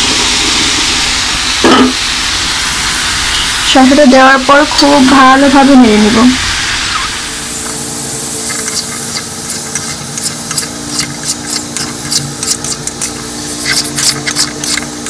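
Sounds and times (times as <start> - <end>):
food sizzling in a pan: 0.0 - 15.0
spoon scraping metal pan: 8.4 - 15.0.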